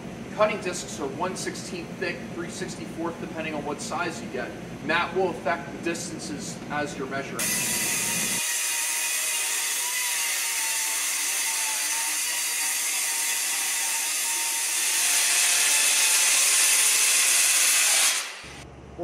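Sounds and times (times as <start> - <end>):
blade grinding on metal: 7.4 - 18.6
electric saw motor whine: 7.4 - 18.6.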